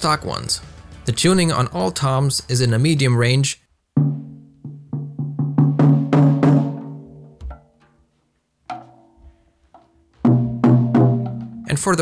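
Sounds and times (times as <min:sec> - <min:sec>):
tom-toms struck: 0:04.0 - 0:08.0, 0:08.7 - 0:09.2, 0:10.2 - 0:11.8.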